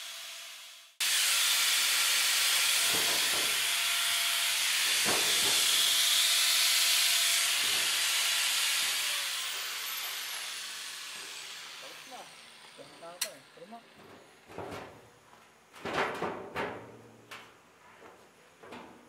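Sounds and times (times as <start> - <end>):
angle grinder cutting steel: 0.0 - 14.0.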